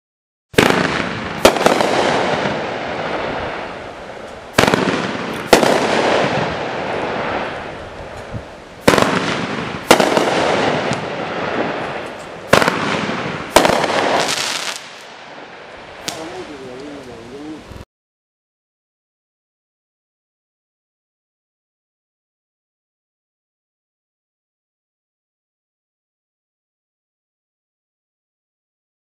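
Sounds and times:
firework bangs: 0:00.5 - 0:17.1
firework crackle: 0:00.5 - 0:17.8.

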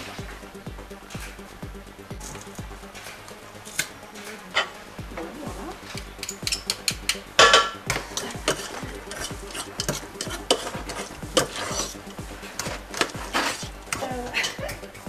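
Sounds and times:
utensil clinking against metal bowl: 0:05.9 - 0:14.9.

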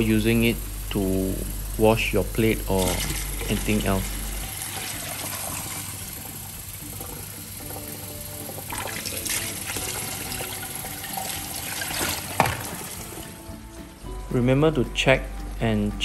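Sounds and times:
water overflowing into metal sink: 0:00.0 - 0:14.1
tap water splashing into cup: 0:04.7 - 0:13.4.

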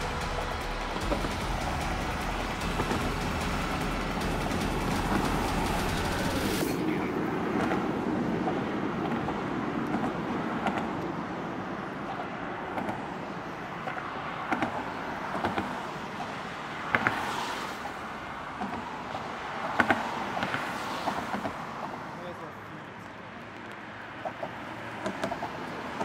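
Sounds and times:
sharp knocks: 0:00.0 - 0:06.8
highway traffic rushing: 0:00.0 - 0:26.0.

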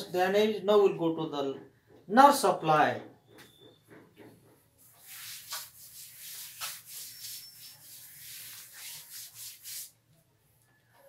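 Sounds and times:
duster rubbing on chalkboard: 0:03.9 - 0:10.0.

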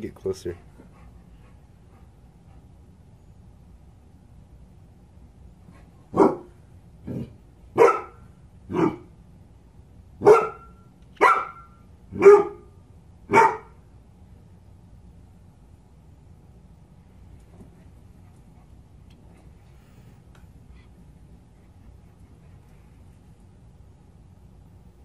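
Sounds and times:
large dog barking: 0:06.1 - 0:09.1, 0:10.2 - 0:12.7, 0:13.3 - 0:13.8.

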